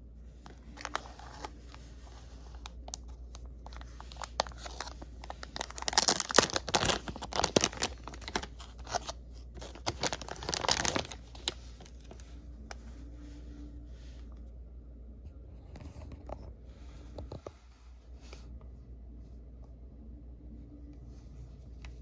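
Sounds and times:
plastic bag crinkling: 0.4 - 12.2.

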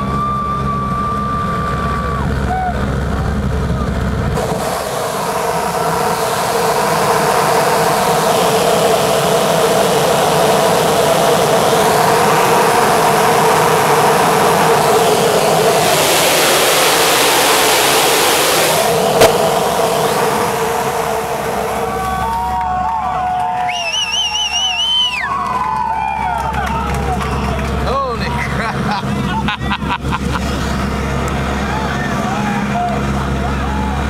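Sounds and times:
airliner engines droning: 0.0 - 34.0
rushing hiss: 4.4 - 22.4.

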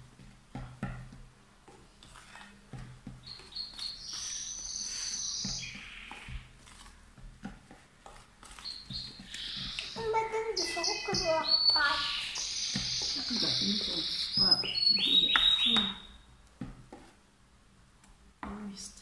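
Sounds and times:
whisk tapping and scraping bowl: 0.0 - 14.4
high-pitched chirping: 3.3 - 6.3, 8.6 - 16.2.

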